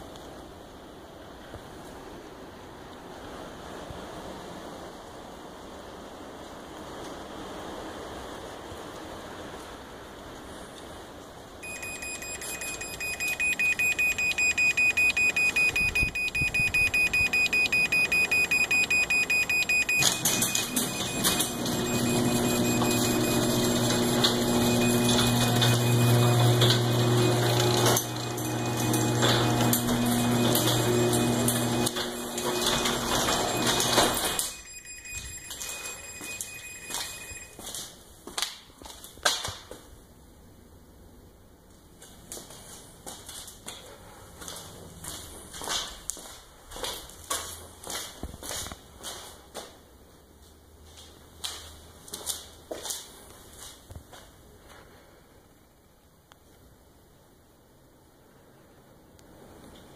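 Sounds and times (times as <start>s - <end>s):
rapid high-pitched warning beeps: 11.6s - 26.4s, 30.4s - 37.6s
garage door opener motor: 11.6s - 34.5s
garage door rolling down: 11.6s - 35.0s.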